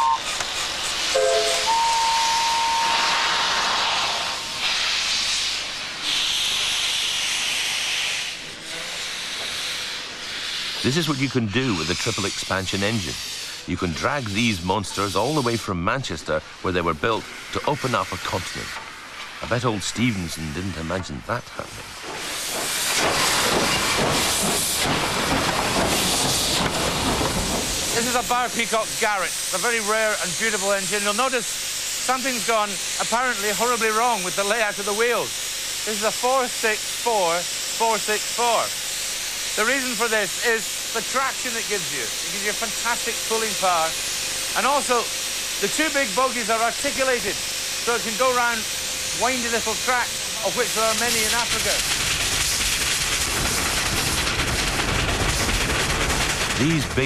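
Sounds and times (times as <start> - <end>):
steam hissing gusts: 0.0 - 57.0
steam locomotive moving off: 0.0 - 57.0
thin high tone: 1.1 - 3.2.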